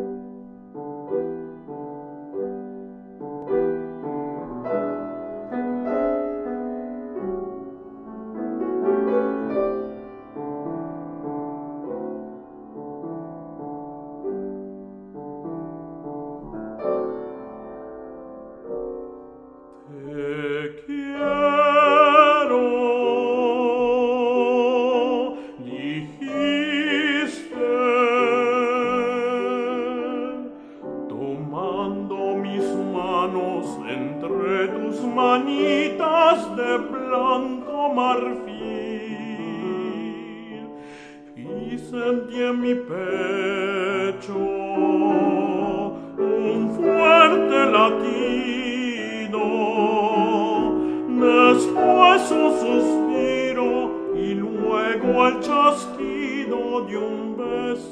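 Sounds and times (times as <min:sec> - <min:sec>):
piano: 0:00.0 - 0:57.9
tenor singing with vibrato: 0:19.8 - 0:57.9.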